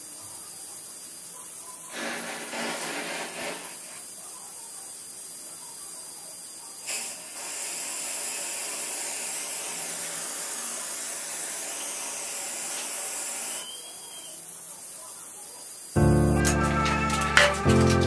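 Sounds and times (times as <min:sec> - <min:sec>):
welding torch gas hiss: 0:00.0 - 0:05.4, 0:06.4 - 0:14.9.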